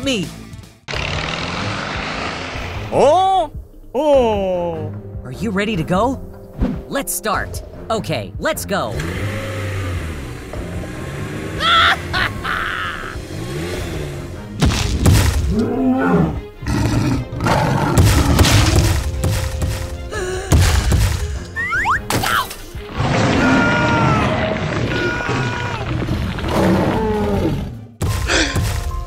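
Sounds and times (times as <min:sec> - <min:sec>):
background music: 0:00.0 - 0:29.0
crashes and thuds: 0:14.6 - 0:15.5, 0:18.0 - 0:21.3
dinosaur roar: 0:15.5 - 0:18.8, 0:22.9 - 0:28.0.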